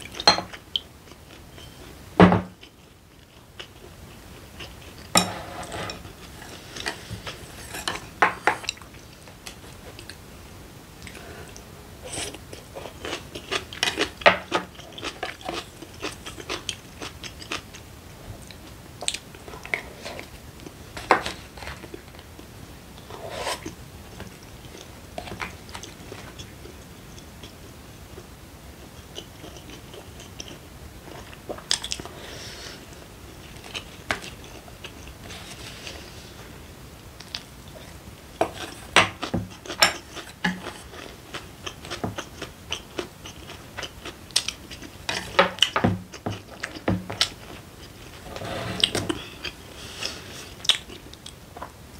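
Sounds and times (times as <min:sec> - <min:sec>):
wooden spoon scraping ceramic bowl: 0:05.2 - 0:06.0, 0:48.2 - 0:49.2
chewing rice: 0:11.0 - 0:27.6, 0:28.2 - 0:32.1, 0:37.2 - 0:48.2.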